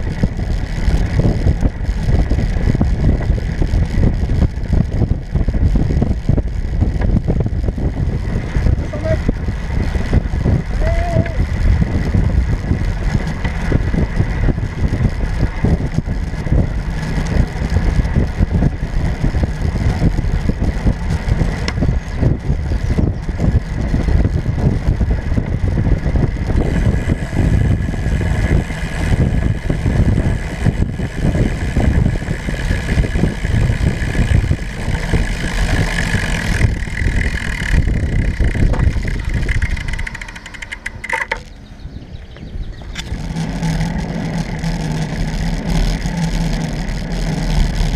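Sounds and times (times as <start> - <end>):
wind buffeting microphone: 0.0 - 47.9.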